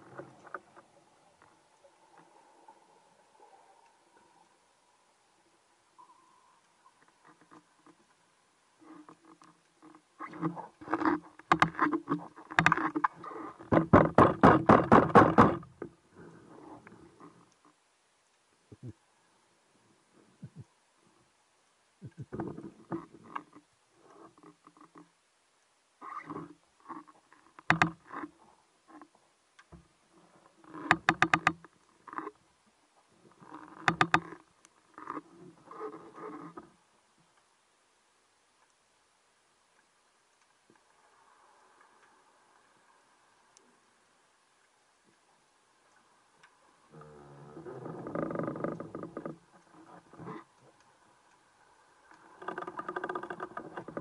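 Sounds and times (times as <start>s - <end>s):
muffled underwater knocks: 13.7s - 15.7s.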